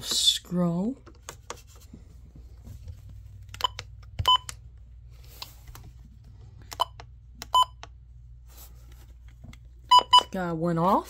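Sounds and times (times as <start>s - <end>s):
low steady hum: 0.0s - 11.0s
short keypad beeps: 3.6s - 4.5s, 6.8s - 7.8s, 9.9s - 10.3s.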